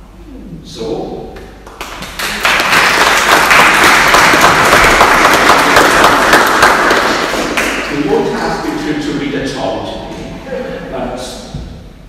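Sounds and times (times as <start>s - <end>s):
applause: 1.6s - 7.9s.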